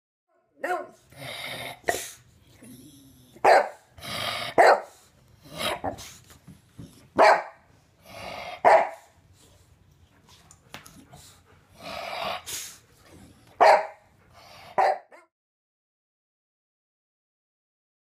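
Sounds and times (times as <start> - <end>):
dog barking: 0.6 - 1.0, 3.4 - 3.9, 4.6 - 5.0, 7.2 - 7.6, 8.6 - 9.1, 13.6 - 14.0, 14.8 - 15.3.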